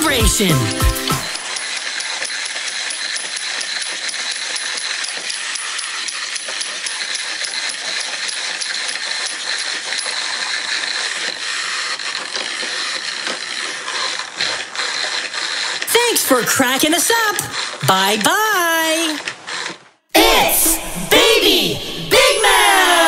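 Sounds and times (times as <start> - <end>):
wind-up toys whirring rattle: 0.0 - 20.7
fine clicking and metallic clinking: 1.3 - 15.9.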